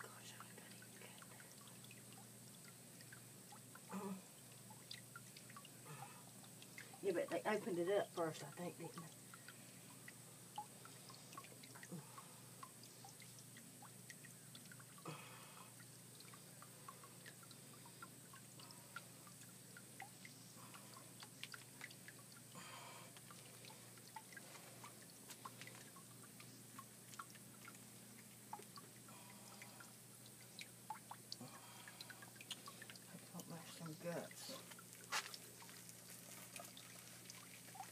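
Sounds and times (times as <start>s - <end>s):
faint small clicks and wet ticks: 0.0s - 37.9s.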